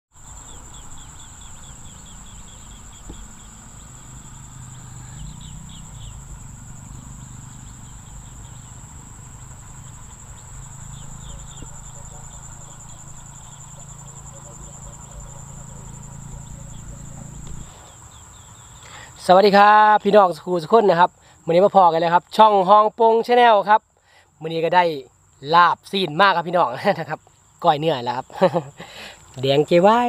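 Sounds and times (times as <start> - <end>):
insects trilling: 0.1 - 30.0
low hum: 0.3 - 18.6.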